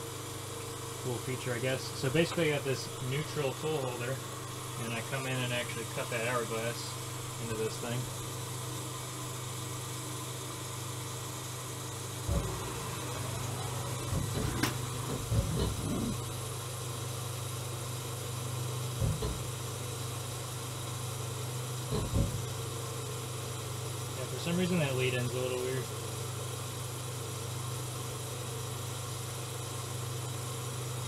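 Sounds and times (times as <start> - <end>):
lathe spindle humming: 1.9 - 21.9
low thumps: 12.2 - 16.2.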